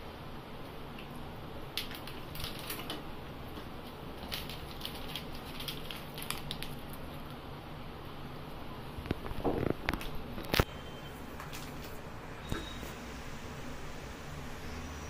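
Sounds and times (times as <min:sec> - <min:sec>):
plastic packet crinkling: 0:01.8 - 0:03.0, 0:03.8 - 0:07.0.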